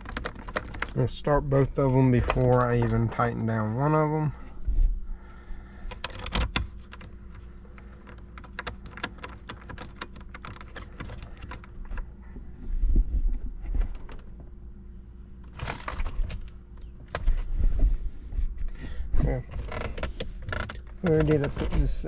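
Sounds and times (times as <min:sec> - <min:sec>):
plastic parts clicking and rattling: 0:00.0 - 0:03.4, 0:05.9 - 0:12.1, 0:15.5 - 0:17.3
low steady hum: 0:00.0 - 0:22.0.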